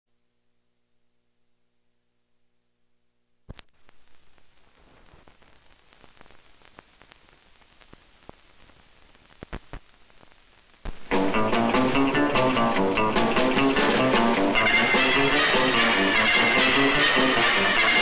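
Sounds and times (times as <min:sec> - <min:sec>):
faint hum: 0:00.1 - 0:11.4
film soundtrack hiss and crackle: 0:00.1 - 0:18.0
clicks and pops: 0:03.5 - 0:11.1.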